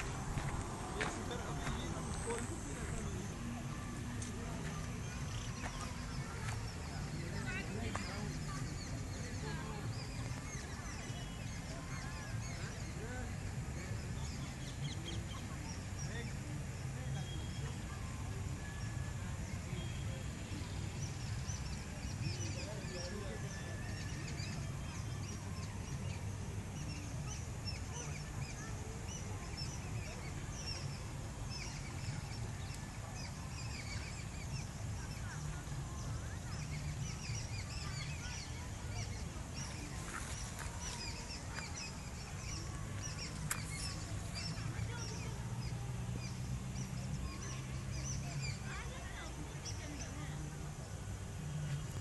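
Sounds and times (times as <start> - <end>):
low steady hum: 0.0 - 13.7.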